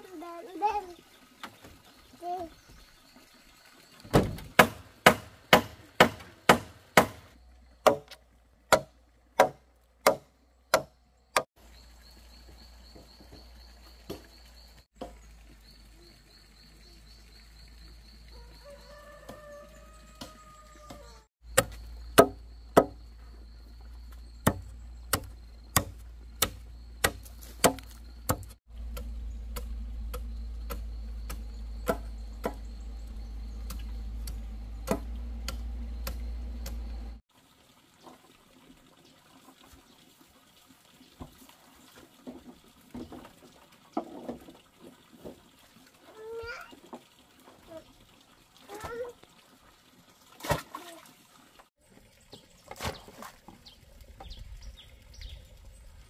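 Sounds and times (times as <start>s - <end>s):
machete chopping wood: 4.1s - 11.5s, 21.6s - 23.0s, 24.4s - 32.7s, 33.7s - 36.8s
rooster crowing: 18.3s - 21.3s.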